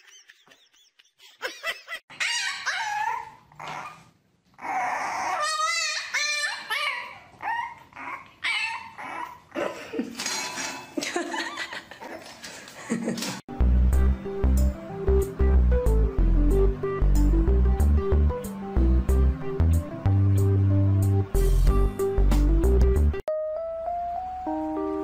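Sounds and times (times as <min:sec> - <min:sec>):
dog whining and yipping: 0:02.1 - 0:09.6.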